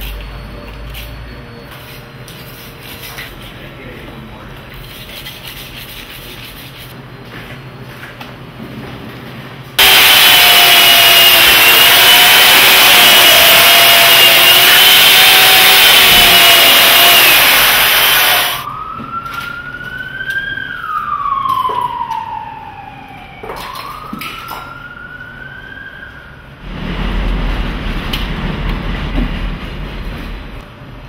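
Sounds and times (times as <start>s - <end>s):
chainsaw cutting ice: 9.8s - 18.6s
wailing siren-like tone: 9.8s - 26.6s.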